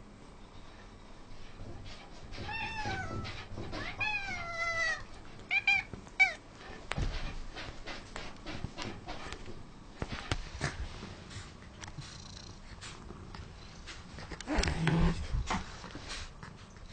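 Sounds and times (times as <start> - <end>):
cats meowing: 2.4 - 6.4.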